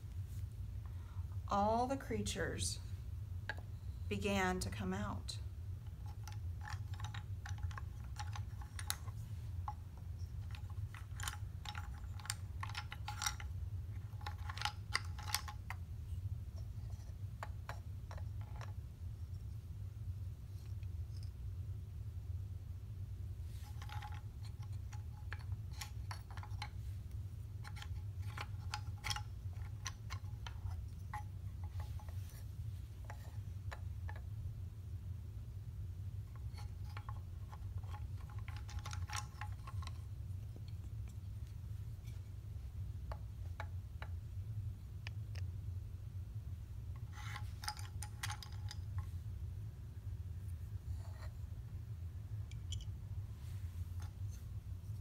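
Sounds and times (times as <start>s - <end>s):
steady low hum: 0.0s - 55.0s
wooden toys clicking and clattering: 5.8s - 19.6s, 23.5s - 34.3s, 36.2s - 45.4s, 46.8s - 49.2s, 52.5s - 55.0s.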